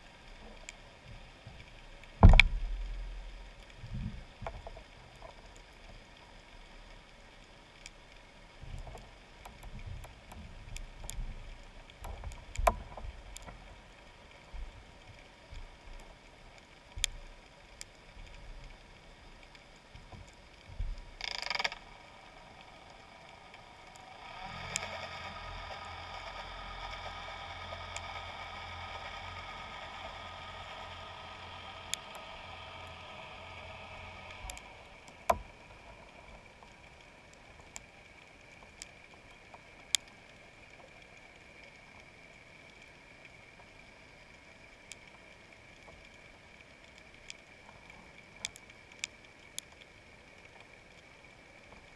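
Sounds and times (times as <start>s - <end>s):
boat motor hum underwater: 0.0s - 51.9s
sharp clicks and knocks: 2.2s - 3.0s.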